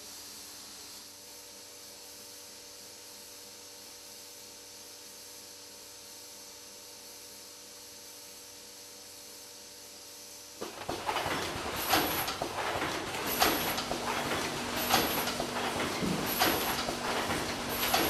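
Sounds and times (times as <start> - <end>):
faint hiss with hum: 0.0 - 10.6
machine mechanical clatter: 10.6 - 18.0.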